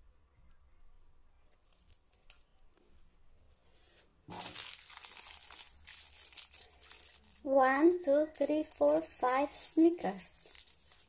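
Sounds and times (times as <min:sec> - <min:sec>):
foil wrappers crinkling: 0:01.6 - 0:02.4, 0:04.3 - 0:11.0.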